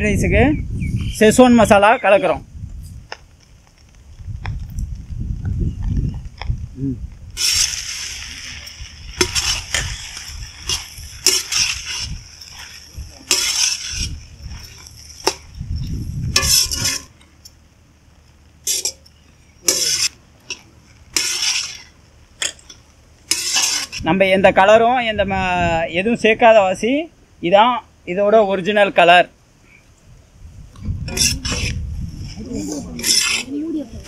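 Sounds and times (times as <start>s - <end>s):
steel spatula scraping a wok: 7.4s - 15.5s, 16.3s - 17.2s, 19.6s - 20.2s, 21.1s - 24.0s, 31.1s - 33.7s.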